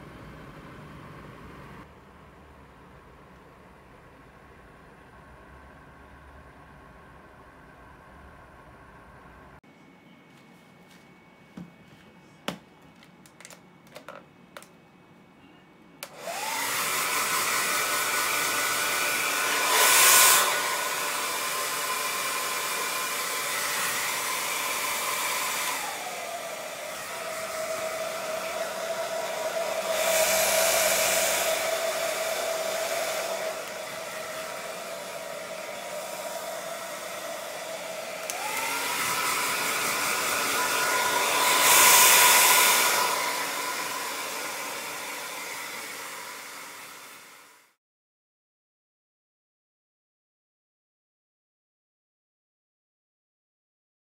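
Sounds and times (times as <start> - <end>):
hair dryer running: 16.0 - 47.8.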